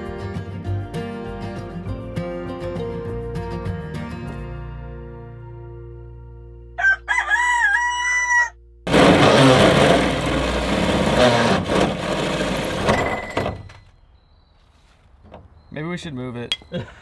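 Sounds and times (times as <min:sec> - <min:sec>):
rooster crowing: 0:06.8 - 0:08.6
drill grinding through sheet metal: 0:08.9 - 0:13.6.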